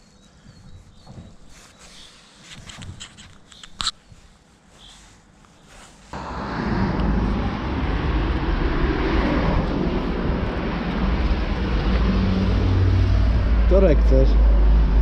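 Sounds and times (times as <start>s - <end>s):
road traffic rumble: 6.1s - 15.0s.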